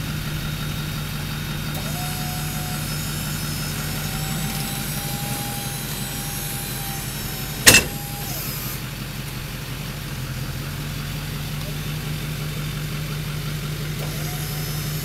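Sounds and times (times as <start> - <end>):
hydraulic pump motor whining: 0.0 - 9.5, 14.0 - 15.0
truck engine idling: 0.0 - 15.0
sharp clunk: 7.6 - 8.4.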